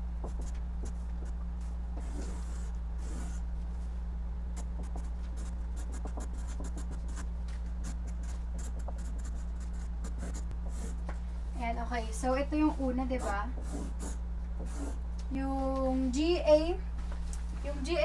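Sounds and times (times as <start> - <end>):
steady low hum: 0.0 - 18.0
marker scratching on paper: 0.2 - 1.4, 2.0 - 3.4, 4.6 - 11.0, 13.0 - 15.0.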